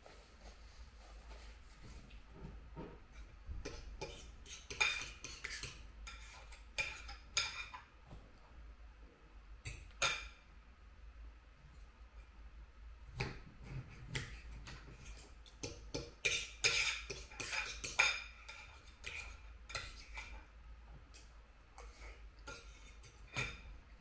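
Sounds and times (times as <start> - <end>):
cutlery clinking on a plate: 3.6 - 7.9, 15.5 - 20.3.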